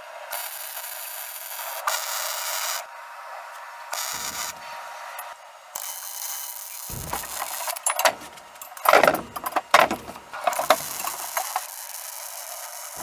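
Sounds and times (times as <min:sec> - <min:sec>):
welder crackling hiss: 0:00.3 - 0:02.8, 0:03.9 - 0:08.4, 0:10.1 - 0:13.0
irregular clattering knocks: 0:06.9 - 0:11.5.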